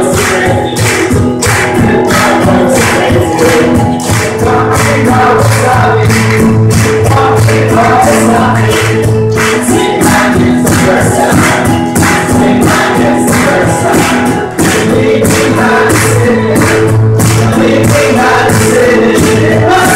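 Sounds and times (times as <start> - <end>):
acoustic guitar: 0.0 - 19.9
cajon beat: 0.0 - 19.9
voices singing together: 0.0 - 19.9.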